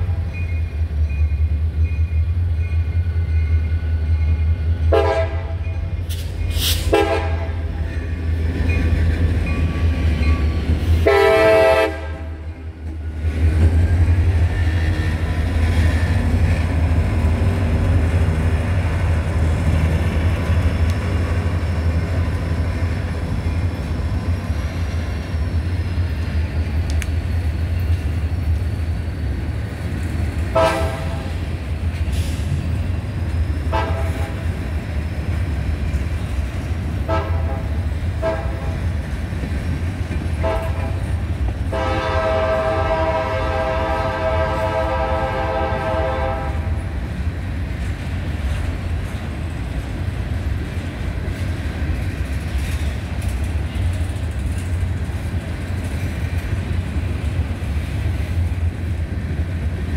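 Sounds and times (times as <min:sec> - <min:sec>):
train wheels rumbling on rails: 0:00.0 - 0:59.9
train horn blasts: 0:04.8 - 0:05.8, 0:06.8 - 0:07.7, 0:11.0 - 0:12.5, 0:30.5 - 0:31.4, 0:33.7 - 0:34.4, 0:37.0 - 0:38.8, 0:40.4 - 0:41.1, 0:41.7 - 0:46.9.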